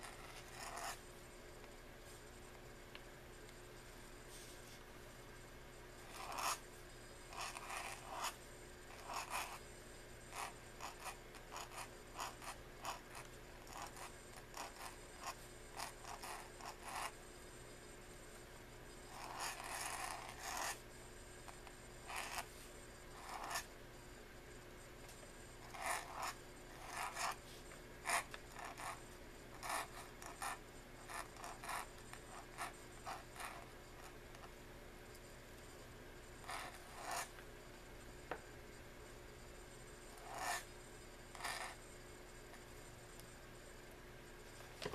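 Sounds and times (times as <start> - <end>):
pen nib scratching paper: 0.0 - 1.0, 6.0 - 6.6, 7.3 - 9.6, 10.3 - 17.2, 19.1 - 20.8, 21.5 - 23.7, 25.6 - 34.5, 36.4 - 37.3, 40.1 - 40.7, 41.3 - 41.8.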